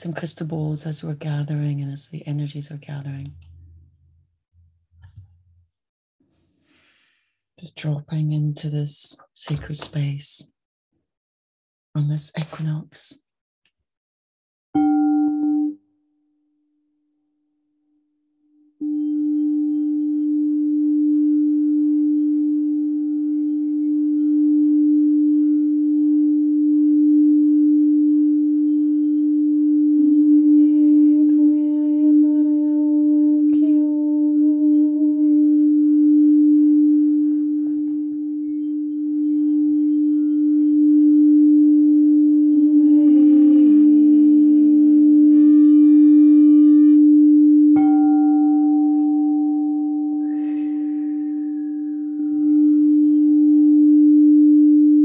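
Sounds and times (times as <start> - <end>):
higher bowl tone: 0.9 - 5.6, 14.8 - 15.9, 18.7 - 55.0
bowl tone bending downward: 3.2 - 5.6, 14.8 - 15.8, 18.8 - 55.0
singing bowls ringing: 18.8 - 20.5, 47.8 - 53.6.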